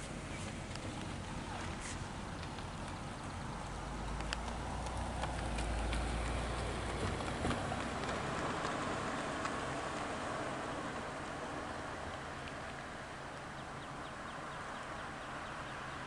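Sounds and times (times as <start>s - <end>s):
faint clicks: 2.4s - 3.4s.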